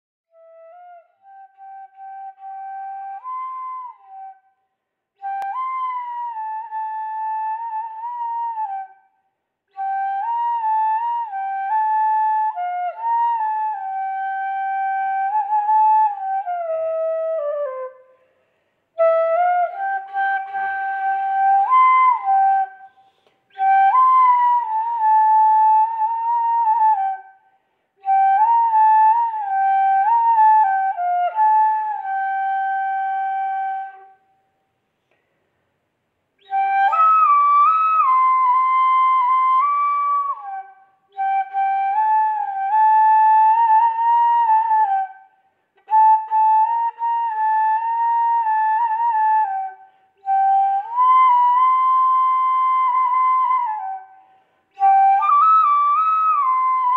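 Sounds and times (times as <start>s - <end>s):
flute playing slow melody: 0.3s - 4.5s, 5.2s - 18.3s, 19.0s - 27.4s, 28.0s - 34.5s, 36.4s - 56.9s.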